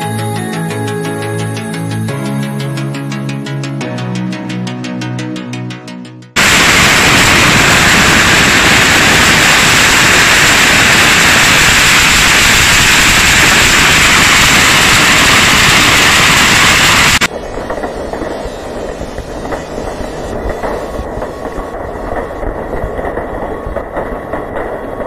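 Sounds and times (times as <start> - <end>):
quieter fireworks crackle: 6.4 - 25.0
rockets hissing and crackling: 6.4 - 25.0.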